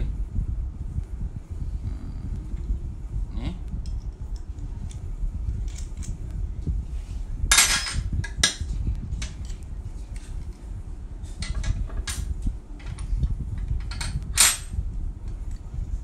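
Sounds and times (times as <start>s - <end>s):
metal tools clattering: 7.5s - 8.6s.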